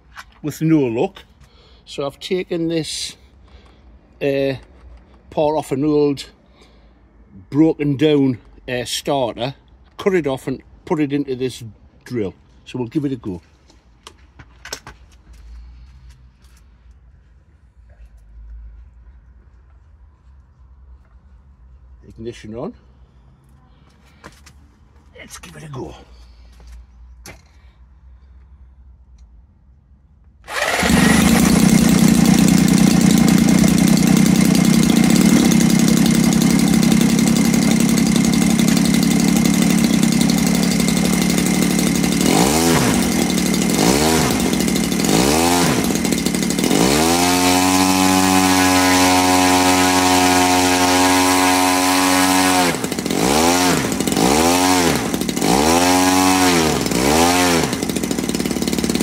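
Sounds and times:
model aircraft engine revving: 30.5 - 59.0.

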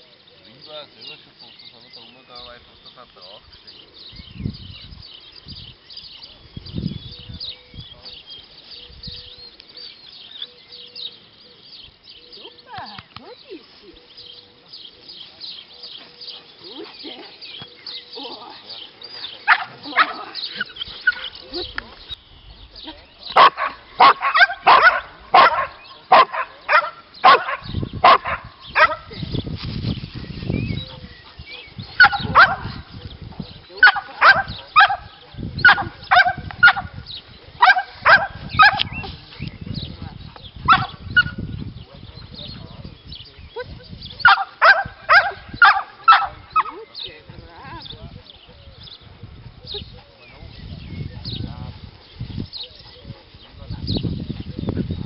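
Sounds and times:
small birds chirping: 0.0 - 55.0
dog barking: 19.5 - 20.4, 23.4 - 29.1, 31.6 - 32.8, 33.8 - 36.9, 37.6 - 38.9, 40.7 - 41.4, 44.2 - 46.8.

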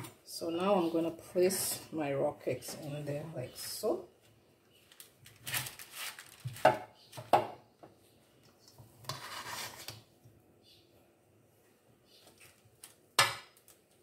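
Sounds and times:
spoon scraping metal bowl: 9.0 - 10.0.

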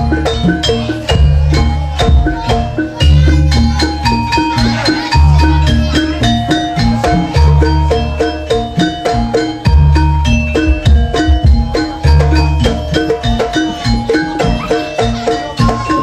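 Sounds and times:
metallophones ringing melody: 0.0 - 16.0.

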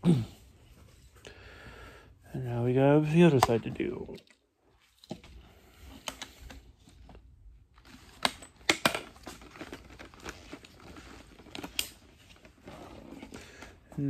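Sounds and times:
plastic toy parts rustling and tapping: 3.0 - 14.0.

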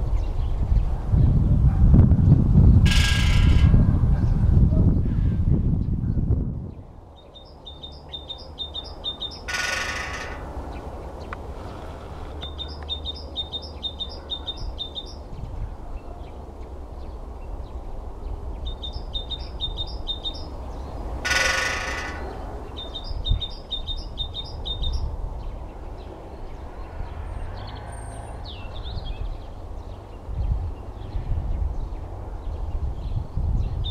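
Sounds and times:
woodpecker drumming on pole: 2.9 - 3.8, 7.9 - 10.8, 21.2 - 23.1
songbird singing high phrase: 7.2 - 10.9, 12.4 - 15.2, 18.6 - 25.1.

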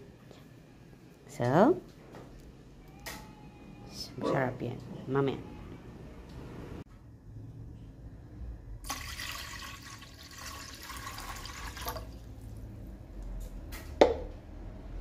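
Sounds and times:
water pouring into a pot: 8.8 - 12.4.

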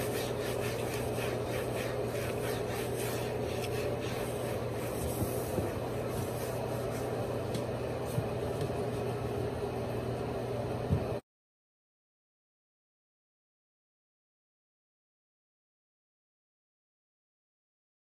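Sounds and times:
cloth wiping a countertop: 0.0 - 9.2
steady low hum: 0.0 - 11.2.

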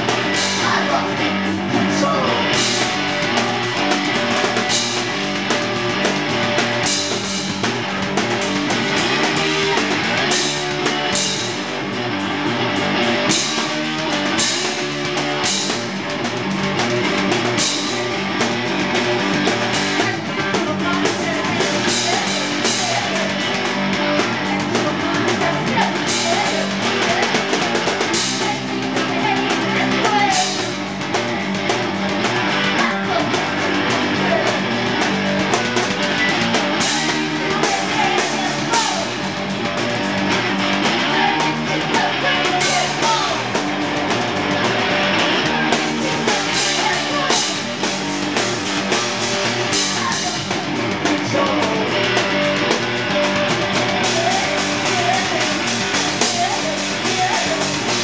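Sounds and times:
person singing: 0.0 - 3.2, 19.8 - 31.1, 32.4 - 34.8, 36.0 - 39.5, 40.6 - 43.7, 44.9 - 48.1, 49.6 - 58.0
drum kit: 0.0 - 58.0
electric guitar: 0.0 - 58.0.

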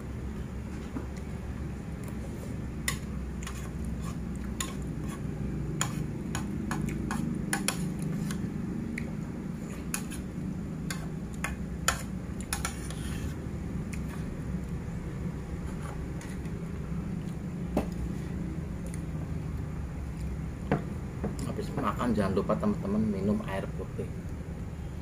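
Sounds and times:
low background hum: 0.0 - 25.0
metal spoon scraping a plate: 3.4 - 5.2, 11.9 - 13.4.

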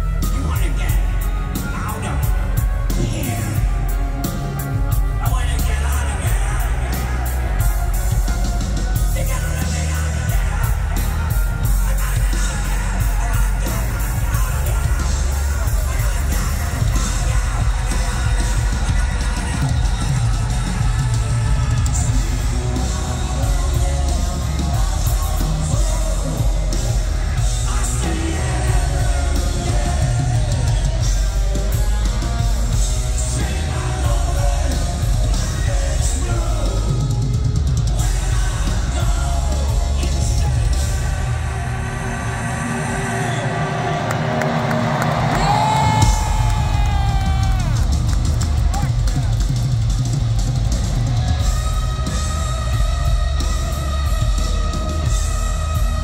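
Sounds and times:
bass guitar: 0.0 - 56.0
drum kit: 0.0 - 56.0
live hard rock band: 0.0 - 56.0
man singing into a microphone: 9.0 - 44.0.

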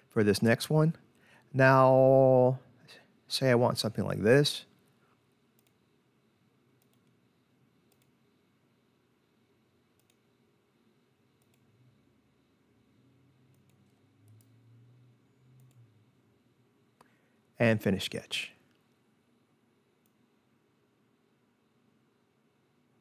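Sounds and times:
faint low hum: 0.0 - 23.0
computer mouse clicks: 5.6 - 5.8, 6.8 - 7.2, 7.9 - 8.2, 10.0 - 10.2, 11.4 - 11.7, 13.5 - 14.6, 15.5 - 15.9.

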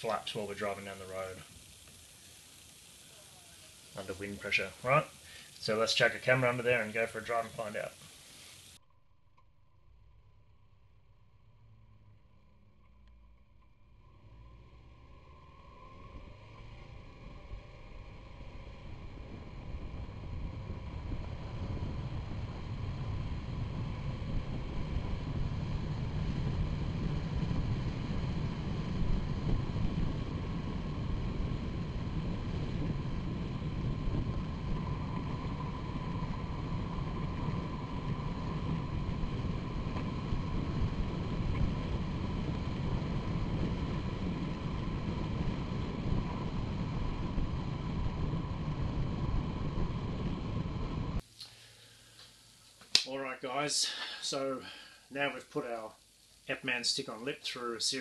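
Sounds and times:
faint thin whine: 0.0 - 58.0
tyre road noise: 11.4 - 51.2
wind rush: 14.2 - 51.2.

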